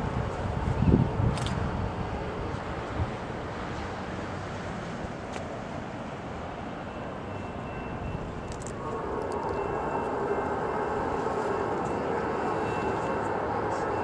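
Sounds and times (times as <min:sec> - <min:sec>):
traffic noise: 0:00.0 - 0:14.0
wind: 0:00.0 - 0:14.0
locomotive droning: 0:05.8 - 0:14.0.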